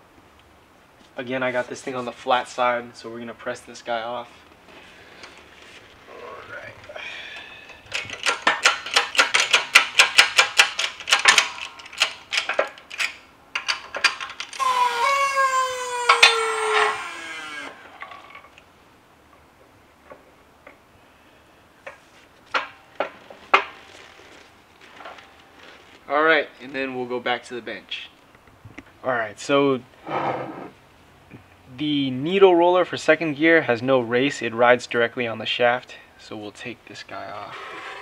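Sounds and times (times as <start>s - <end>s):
metal squeal: 14.6s - 17.8s, 37.4s - 38.0s.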